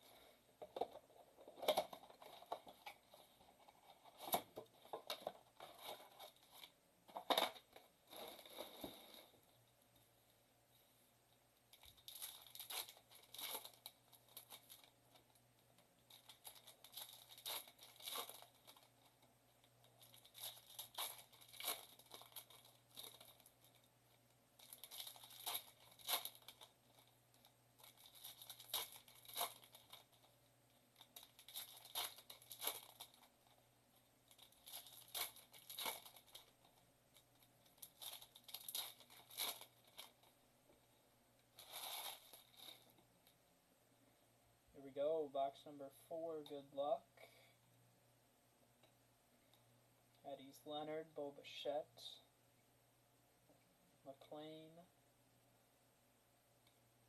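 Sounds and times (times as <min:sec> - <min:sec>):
foil wrappers tearing and crinkling: 0:11.8 - 0:14.9, 0:16.1 - 0:18.9, 0:20.0 - 0:23.8, 0:24.6 - 0:27.1, 0:27.8 - 0:30.2, 0:31.0 - 0:33.3, 0:34.3 - 0:36.6, 0:37.4 - 0:40.3, 0:41.6 - 0:42.8.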